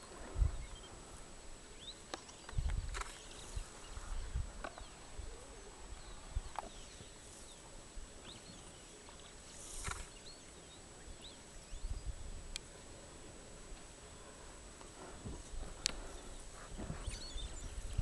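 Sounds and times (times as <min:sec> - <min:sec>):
faint bird chirps: 0:00.4 - 0:12.2, 0:16.0 - 0:18.0.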